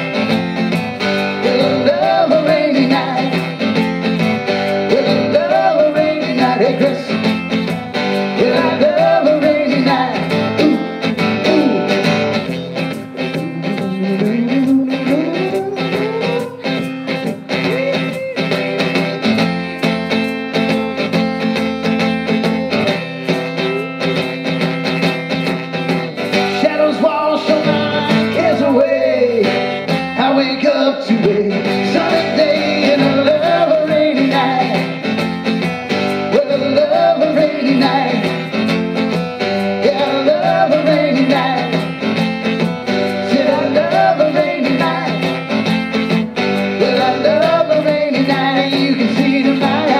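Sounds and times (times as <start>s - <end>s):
acoustic guitar strumming: 0.0s - 49.9s
person singing: 1.0s - 3.8s, 4.5s - 7.4s, 8.0s - 19.2s, 22.4s - 24.3s, 26.2s - 35.2s, 35.9s - 38.7s, 39.6s - 42.2s, 42.9s - 45.6s, 46.6s - 49.9s.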